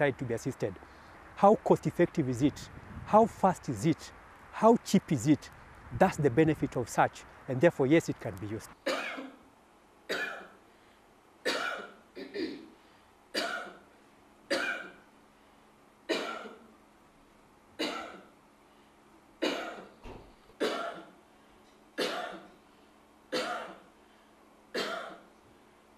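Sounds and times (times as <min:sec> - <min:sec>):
person coughing: 0:08.8 - 0:09.4, 0:10.1 - 0:10.6, 0:11.4 - 0:12.8, 0:13.4 - 0:13.8, 0:14.5 - 0:15.0, 0:16.1 - 0:16.6, 0:17.8 - 0:18.3, 0:19.4 - 0:20.0, 0:20.6 - 0:21.2, 0:22.0 - 0:22.6, 0:23.3 - 0:23.8, 0:24.7 - 0:25.3.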